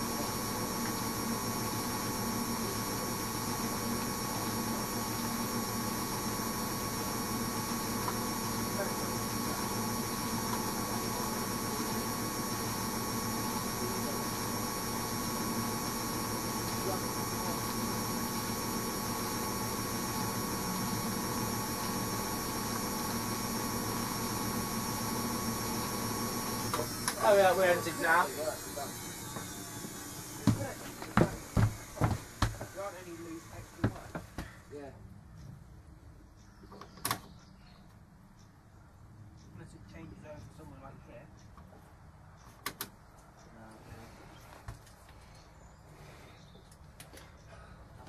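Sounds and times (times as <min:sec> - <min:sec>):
washing machine spinning: 0:00.0 - 0:34.4
steady low hum: 0:00.0 - 0:36.7.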